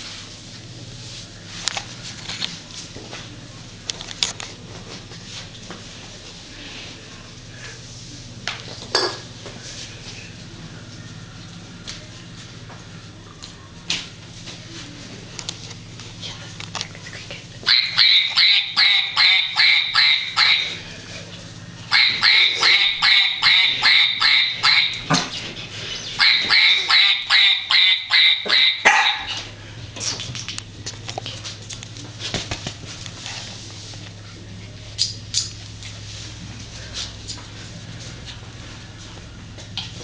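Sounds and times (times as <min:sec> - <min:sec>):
puppy yelping: 0:21.9 - 0:25.0, 0:26.2 - 0:29.4.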